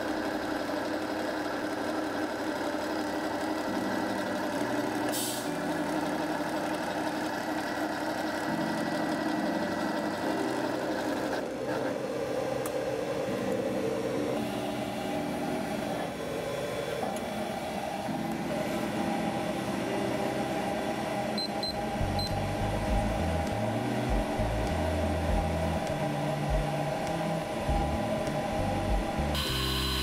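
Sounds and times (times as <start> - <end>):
machine humming: 0.0 - 30.0
short high beeps: 29.4 - 30.0.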